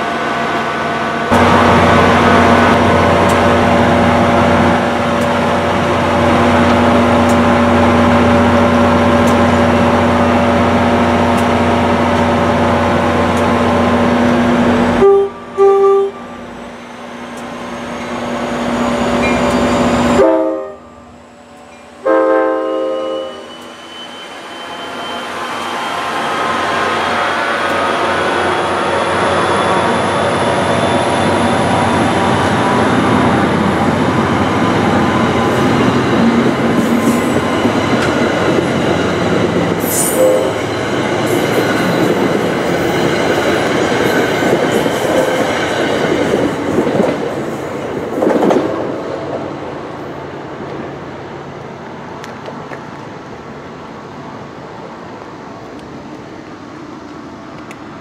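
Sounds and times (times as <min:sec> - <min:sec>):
train coaches rolling past: 0:00.0 - 0:58.0
diesel locomotive horn: 0:14.8 - 0:16.4, 0:20.0 - 0:23.6, 0:39.8 - 0:40.7.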